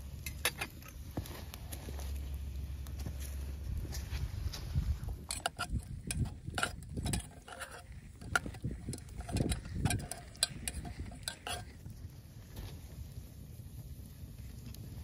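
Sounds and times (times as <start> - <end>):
metal spoon scraping a pot: 5.2 - 11.8.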